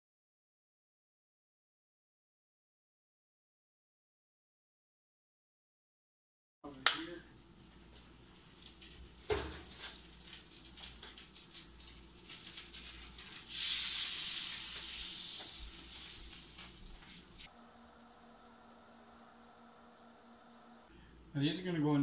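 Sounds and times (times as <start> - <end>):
margarine sizzling in a pan: 8.0 - 17.5.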